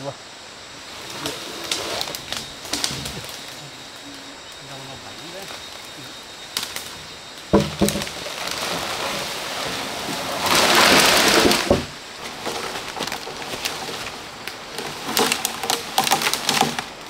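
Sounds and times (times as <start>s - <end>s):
wooden beam scraping: 1.0s - 4.1s, 7.5s - 17.0s
light knocks of timber: 7.5s - 8.2s
footsteps crunching dry leaves: 7.6s - 17.0s.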